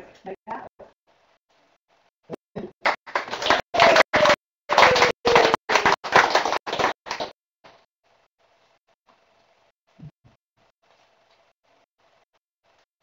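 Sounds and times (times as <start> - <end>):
audience applauding: 2.8 - 7.4.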